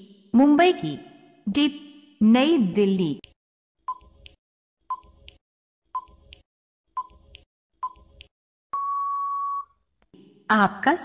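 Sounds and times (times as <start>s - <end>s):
electronic beep: 8.7s - 9.7s.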